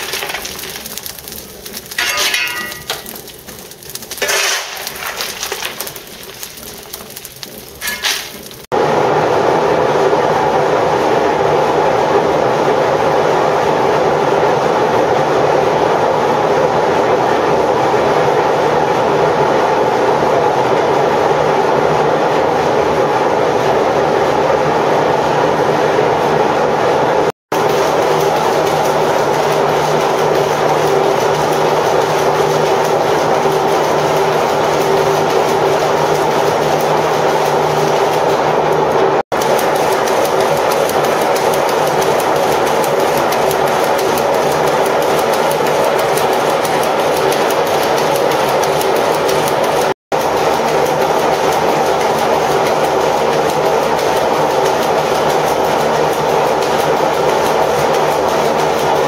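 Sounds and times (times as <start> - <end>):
power looms clattering: 0.0 - 8.7, 24.5 - 59.0.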